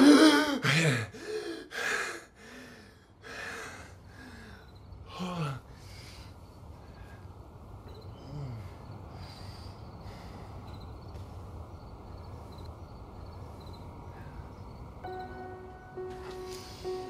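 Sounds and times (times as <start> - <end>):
man moaning: 0.0 - 1.3.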